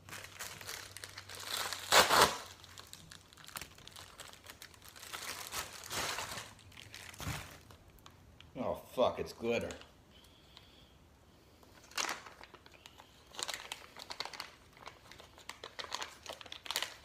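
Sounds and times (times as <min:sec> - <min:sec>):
plastic mailer crinkling: 0:00.0 - 0:08.2, 0:11.7 - 0:17.0.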